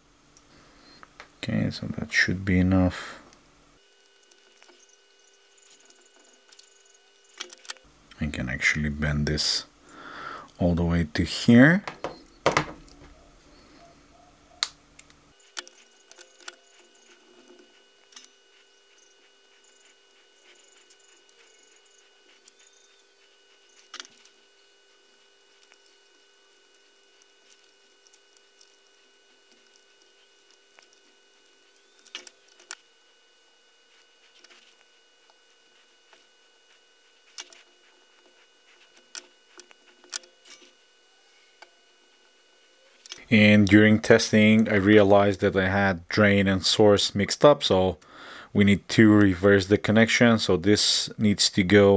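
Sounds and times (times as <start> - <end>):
faint steady hum: 0.0 - 51.9
wire bending clicks and ticks: 14.6 - 22.6, 23.2 - 24.4, 25.0 - 32.9.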